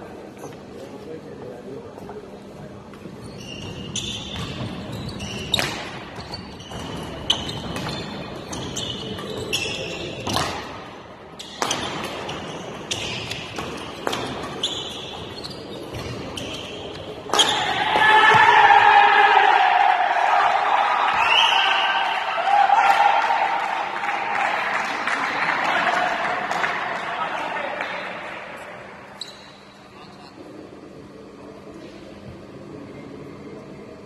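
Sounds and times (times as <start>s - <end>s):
shoes squeaking on court floor: 2.9s - 10.6s, 11.3s - 17.8s, 28.6s - 30.5s
spectators shouting and cheering: 17.4s - 28.6s.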